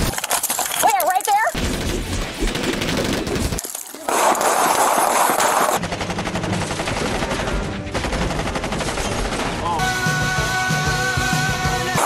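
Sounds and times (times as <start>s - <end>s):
rapid automatic gunfire: 1.6s - 9.8s.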